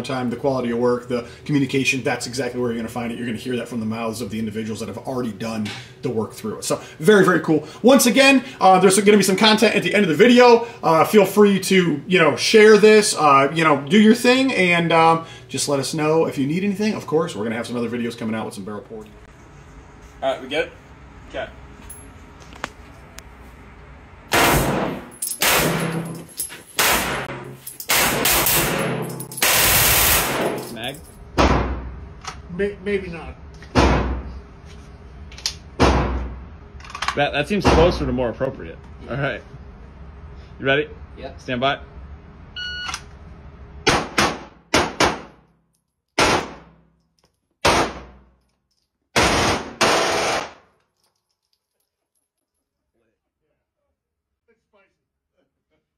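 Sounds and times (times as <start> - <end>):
pistol firing bursts: 26.8 - 27.3, 27.9 - 30.6, 49.2 - 50.6
pistol firing rapid bursts: 27.9 - 28.8, 49.2 - 50.6
electronic beep: 42.6 - 43.0.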